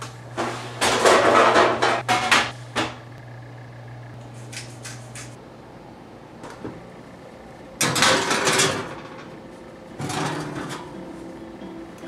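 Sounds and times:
baking sheet scraping on oven rack: 0:00.3 - 0:02.6, 0:10.0 - 0:10.9.

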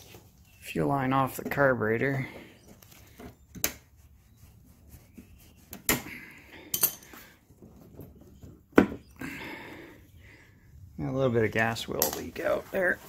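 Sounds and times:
pliers clinking on metal: 0:06.7 - 0:07.2.

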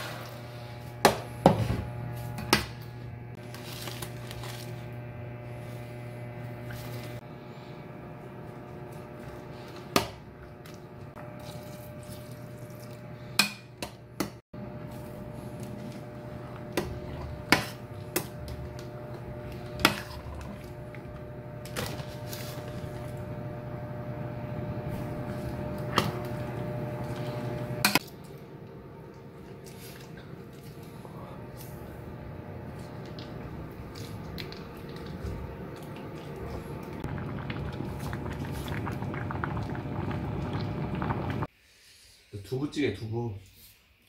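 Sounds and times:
electric cooktop hum: 0:00.0 - 0:41.5.

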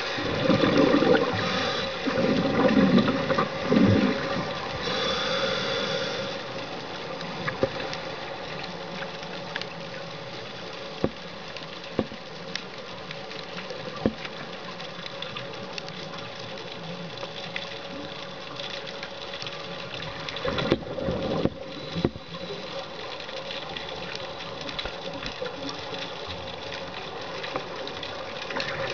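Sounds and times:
steady watery hiss: 0:00.0 - 0:28.9
bubbles from exhaled air: 0:00.2 - 0:04.6.

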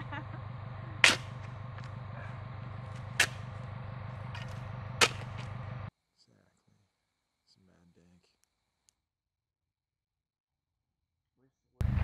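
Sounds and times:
steady low hum: 0:00.0 - 0:08.2
sharp cracks: 0:00.6 - 0:05.9.

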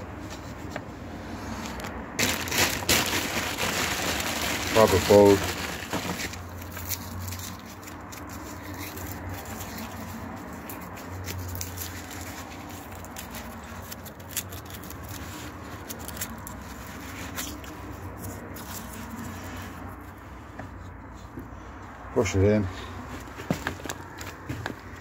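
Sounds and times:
hands scratching compost: 0:01.3 - 0:21.3.

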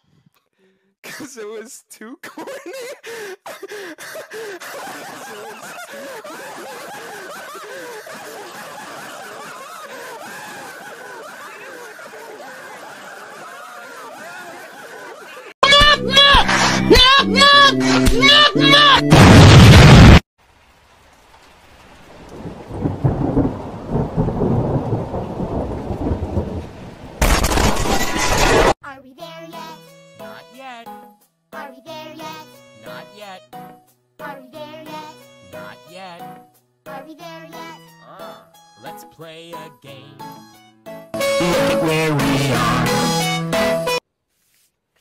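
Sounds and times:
people laughing: 0:02.2 - 0:19.0
rain: 0:20.4 - 0:28.6
rolling thunder: 0:22.1 - 0:27.9.

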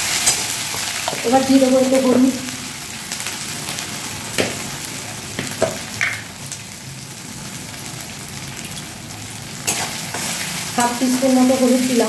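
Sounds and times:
paste sizzling in oil: 0:08.7 - 0:12.0.

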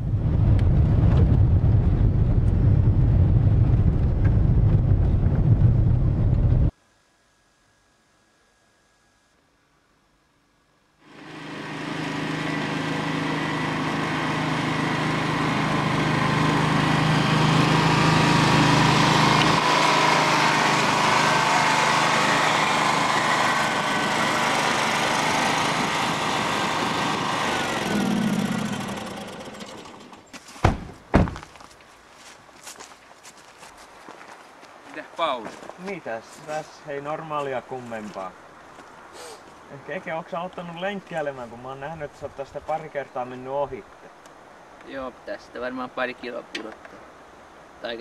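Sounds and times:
lawn mower engine running: 0:11.0 - 0:30.3
car doors shutting: 0:30.6 - 0:31.4.

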